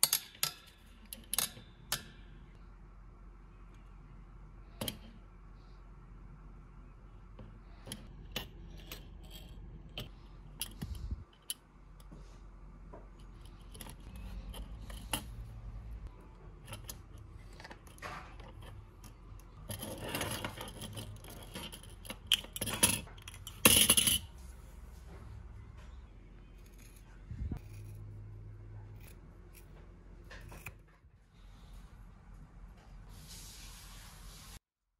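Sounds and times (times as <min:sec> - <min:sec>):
parts rubbing and scraping: 0:07.4 - 0:12.4, 0:13.0 - 0:25.1, 0:26.4 - 0:31.8.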